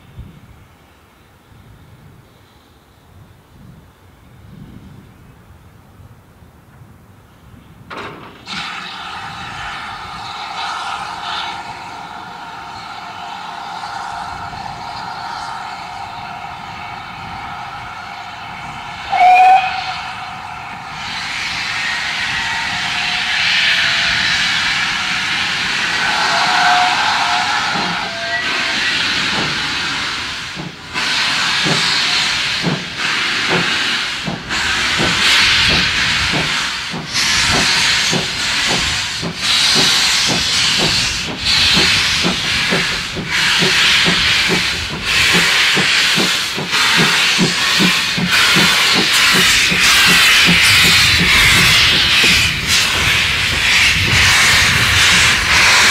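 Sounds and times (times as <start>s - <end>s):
steam locomotive exhaust chuffs: 8.2s - 55.9s
steam hissing: 8.3s - 55.9s
steam whistle blast: 8.5s - 29.6s.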